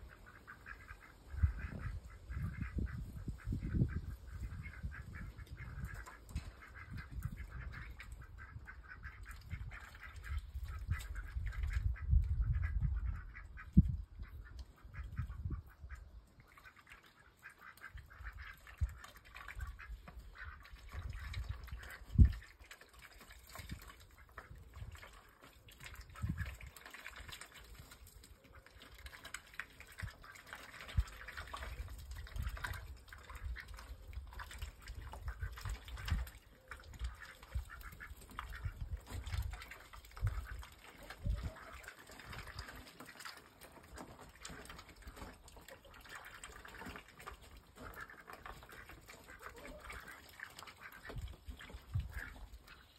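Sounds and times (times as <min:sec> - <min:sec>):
ducks calling: 0:00.0 - 0:22.5, 0:34.9 - 0:43.5, 0:44.3 - 0:52.9.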